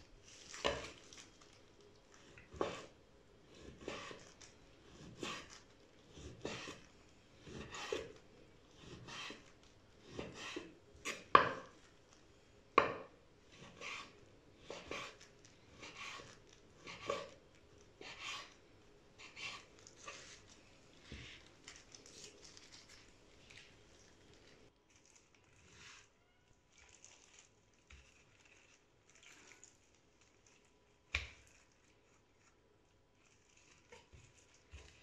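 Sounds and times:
knife slicing meat: 0:02.5 - 0:08.2, 0:08.8 - 0:11.4, 0:13.6 - 0:17.4, 0:18.0 - 0:18.6.

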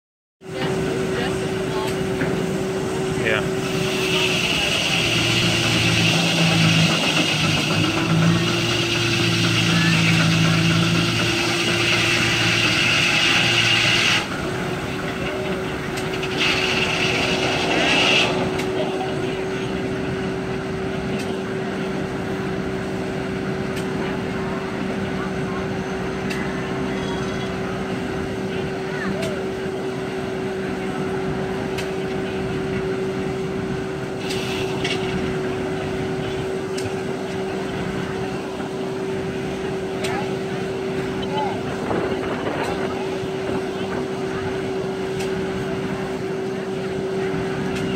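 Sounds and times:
circular sawmill whirring: 0:00.5 - 0:47.9
high saw whine: 0:03.2 - 0:20.6.

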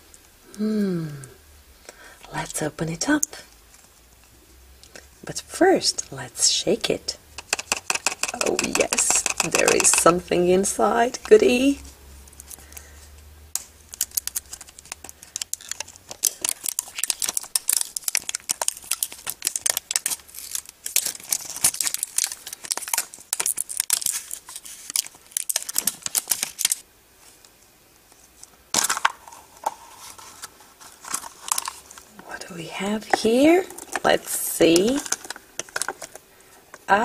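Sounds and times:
plastic egg snapping apart: 0:07.4 - 0:10.1, 0:13.5 - 0:26.8, 0:28.7 - 0:29.4, 0:34.9 - 0:36.2
plastic strip crinkling: 0:07.4 - 0:12.9, 0:13.6 - 0:26.8, 0:28.7 - 0:32.2, 0:34.7 - 0:36.8.

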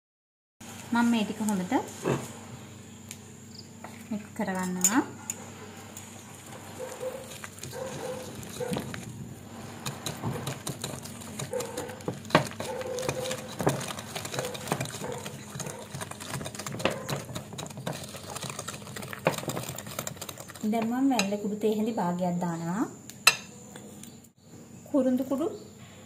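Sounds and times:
whisk scraping bowl: 0:06.5 - 0:21.3.

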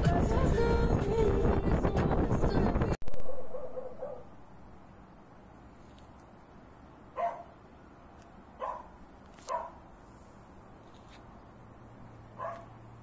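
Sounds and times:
dog barking: 0:03.1 - 0:04.3, 0:07.2 - 0:07.5, 0:08.6 - 0:09.8, 0:12.4 - 0:12.8.

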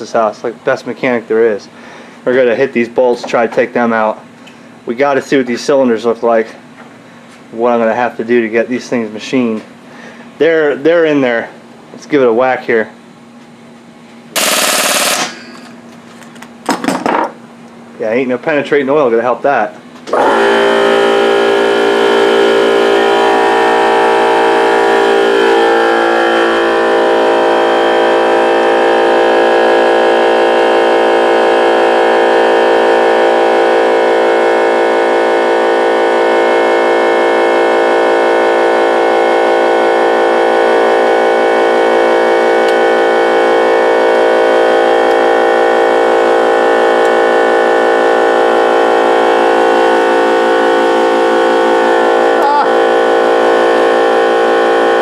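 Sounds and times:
machine motor humming: 0:19.9 - 0:55.0.

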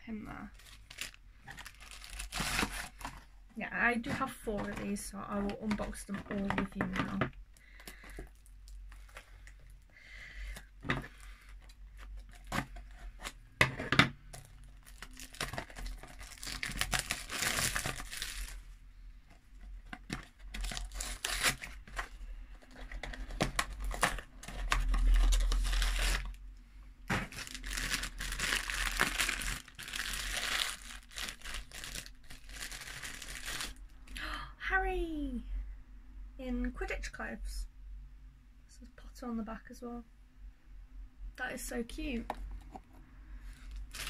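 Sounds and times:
small bag crinkling: 0:00.5 - 0:03.2, 0:14.4 - 0:18.7, 0:19.6 - 0:26.4, 0:27.1 - 0:33.9, 0:43.7 - 0:44.0
cardboard box tearing: 0:01.8 - 0:03.0, 0:20.6 - 0:22.0.

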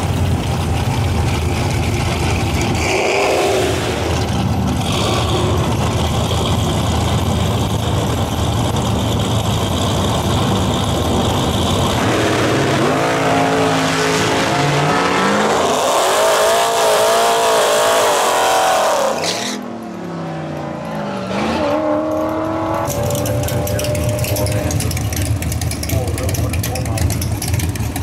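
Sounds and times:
drag car engine idling: 0:00.0 - 0:02.8, 0:04.0 - 0:12.0, 0:23.0 - 0:28.0
tires spinning in burnout: 0:00.8 - 0:19.8
engine revving hard: 0:02.7 - 0:06.4, 0:11.6 - 0:19.6.

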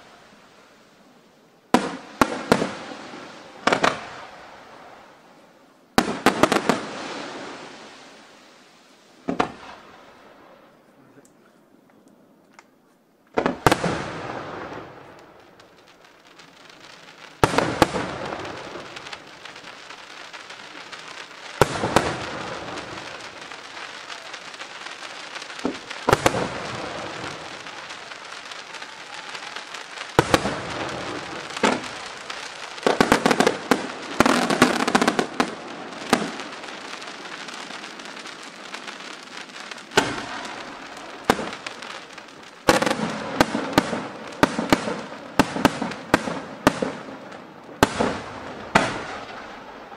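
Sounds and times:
firework crackling: 0:00.0 - 0:11.3, 0:12.1 - 0:49.9
firework shells bursting: 0:17.0 - 0:49.7.

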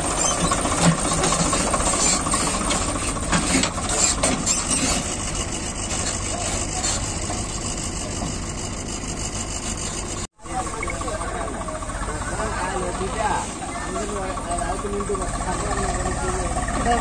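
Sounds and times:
tractor diesel engine under load: 0:00.0 - 0:17.0.

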